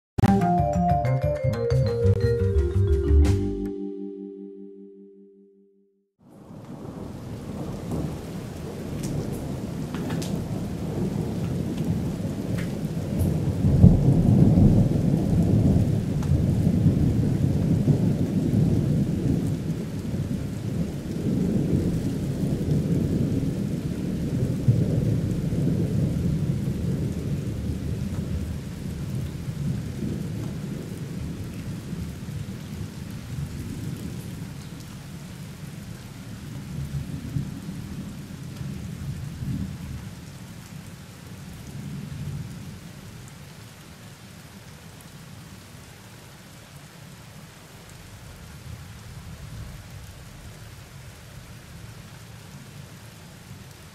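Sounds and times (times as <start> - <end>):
steady rain: 6.2 - 53.9.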